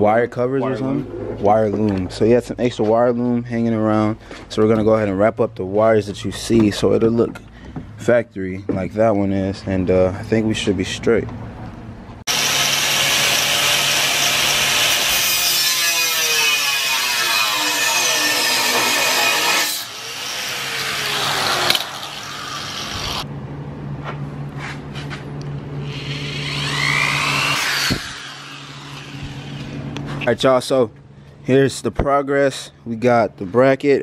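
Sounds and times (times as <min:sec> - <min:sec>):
angle grinder cutting metal: 0:12.3 - 0:23.2, 0:25.8 - 0:29.8
cordless drill boring into metal: 0:12.3 - 0:23.2.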